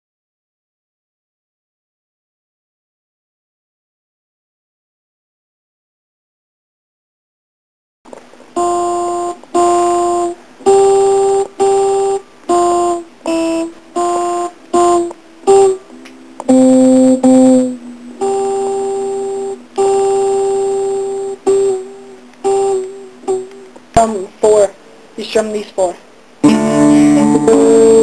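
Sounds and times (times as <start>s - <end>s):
electronic keyboard melody: 8.6s - 23.7s, 26.4s - 28.0s.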